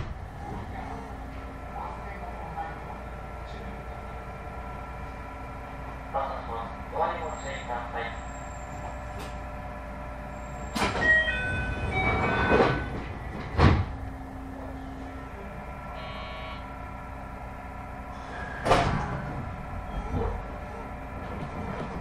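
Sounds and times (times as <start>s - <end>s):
sliding doors thudding: 10.7s - 14.0s, 18.6s - 20.6s.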